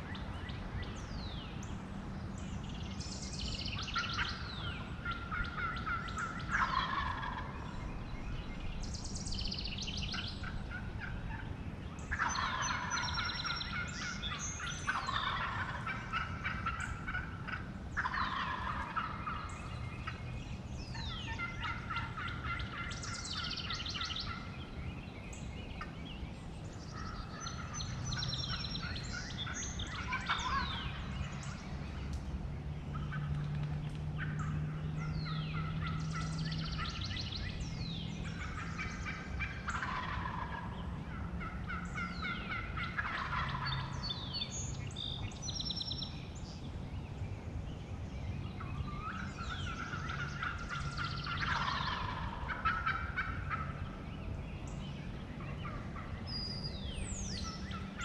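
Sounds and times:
turkey calls: 3.1s - 7.8s, 8.6s - 20.2s, 20.9s - 26.0s, 26.7s - 31.7s, 32.9s - 46.5s, 48.6s - 58.0s
turkeys gobbling: 3.8s - 7.8s, 10.1s - 11.5s, 12.1s - 20.2s, 20.9s - 24.6s, 26.8s - 31.7s, 32.9s - 33.6s, 34.2s - 44.6s, 48.6s - 54.0s, 55.4s - 56.1s, 57.2s - 58.0s.

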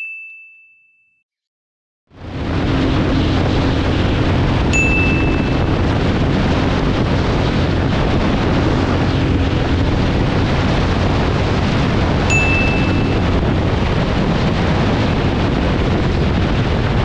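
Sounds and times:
wind noise on microphone: 2.1s - 17.0s
motorcycle engine at full throttle: 2.2s - 17.0s
short high beep: 4.8s - 5.7s, 12.3s - 13.2s.

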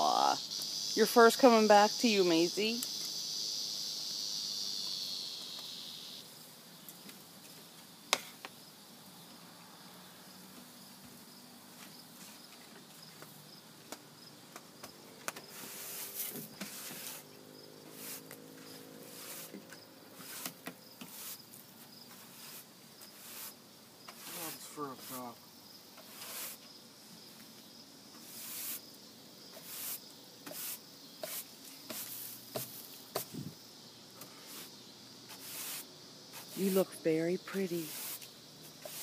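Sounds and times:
loud high insect buzz: 0.0s - 13.6s, 14.2s - 39.0s
faint pulsing insect trill: 0.0s - 39.0s.

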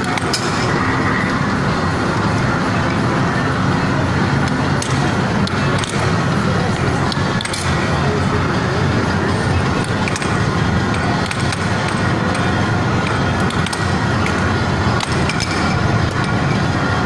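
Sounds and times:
air hockey puck clacking: 0.0s - 0.7s, 4.4s - 7.9s, 9.8s - 16.4s
loud background din: 0.0s - 17.0s.

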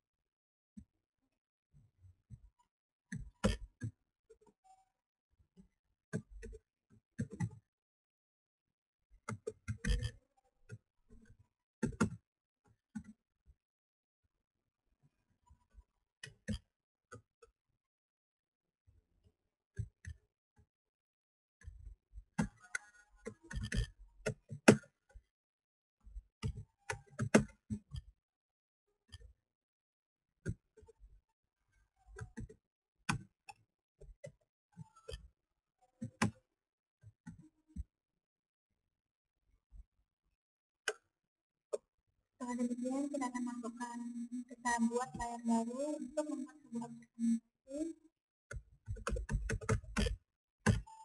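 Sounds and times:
keyboard typing: 42.4s - 47.4s.

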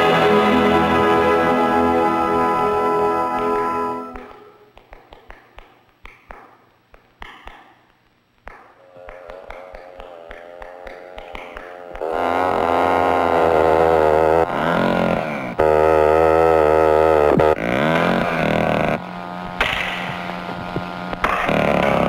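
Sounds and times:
sustained orchestral tones: 0.0s - 4.7s.

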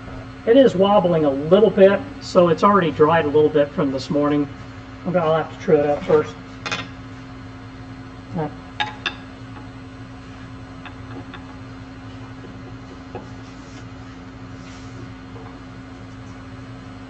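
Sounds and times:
wood lathe motor hum: 7.3s - 17.0s.

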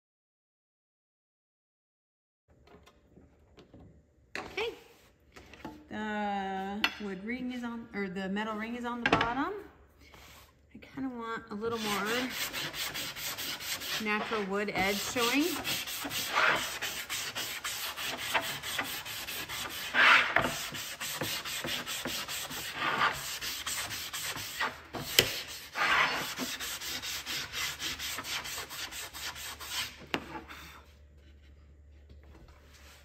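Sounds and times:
sanding block rubbing wood: 11.7s - 30.6s.

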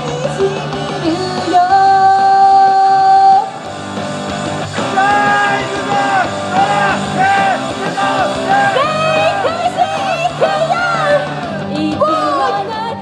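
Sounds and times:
high voices singing pop song: 0.0s - 3.7s, 4.5s - 13.0s
loud backing track: 0.0s - 13.0s
people shouting: 4.8s - 11.6s.

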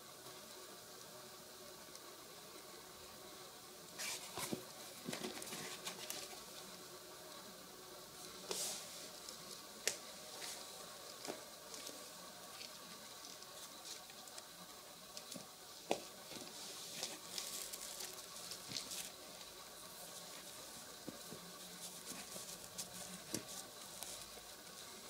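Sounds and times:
rustling of shoe fabric and laces: 4.0s - 6.6s, 15.2s - 24.7s.

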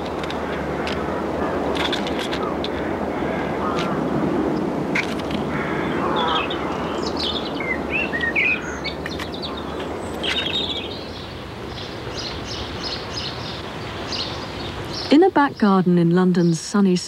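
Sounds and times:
outdoor background noise: 0.0s - 17.0s
small birds chirping: 5.6s - 17.0s.

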